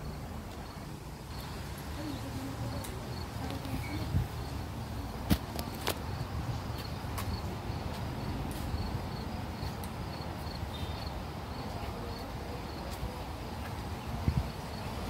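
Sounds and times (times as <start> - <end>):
insect chirping: 0.0 - 5.0, 8.7 - 11.6.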